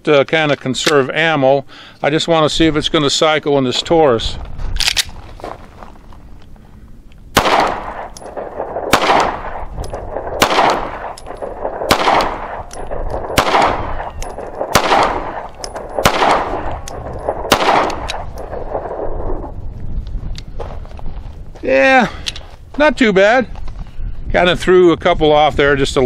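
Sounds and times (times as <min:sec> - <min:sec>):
pistol shots with echo: 0:07.3 - 0:19.4.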